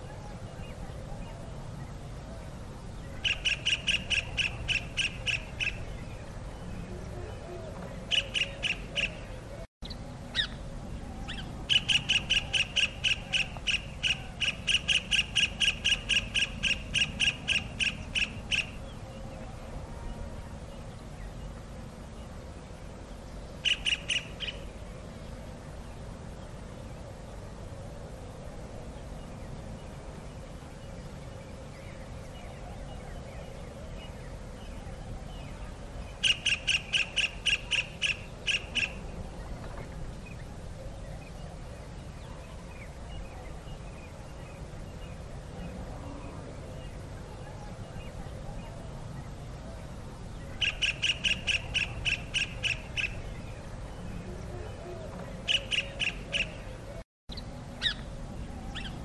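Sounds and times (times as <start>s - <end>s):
kingfisher calling: 3.2s - 5.9s, 8.1s - 9.3s, 11.3s - 18.8s, 23.6s - 24.6s, 36.2s - 39.0s, 50.6s - 53.3s, 55.4s - 56.7s, 57.3s - 58.1s, 58.7s - 59.0s.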